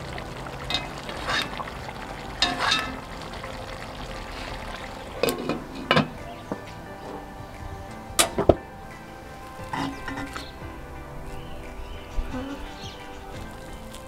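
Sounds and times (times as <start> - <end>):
steady low hiss: 0.0 - 14.0
glass lid clanking on pot: 2.4 - 3.0
metal spoon scraping pot: 2.4 - 3.0.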